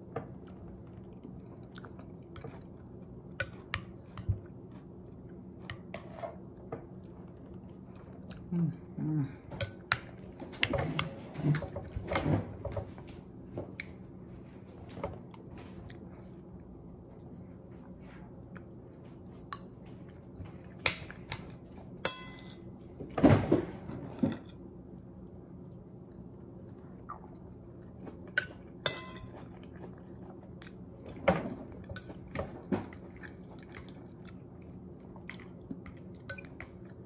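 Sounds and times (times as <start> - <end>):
faint steady hum: 0.0 - 37.0
chewing: 0.3 - 5.9, 25.7 - 32.2, 32.8 - 37.0
metal spoon clinking on bowl: 22.0 - 22.5, 28.4 - 29.3.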